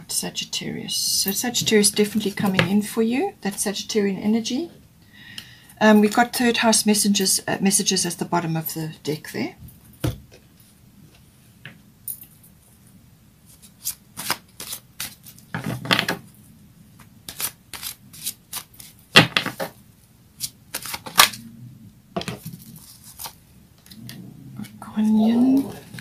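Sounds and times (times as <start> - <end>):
cards being shuffled: 13.5 - 16.2, 17.0 - 19.8, 20.4 - 21.4, 22.2 - 26.0.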